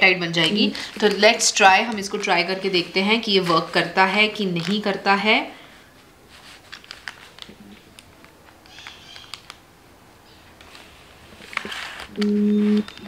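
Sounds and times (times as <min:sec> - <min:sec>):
plastic bag crinkling: 0:00.2 - 0:05.2, 0:06.0 - 0:09.7, 0:10.6 - 0:12.2.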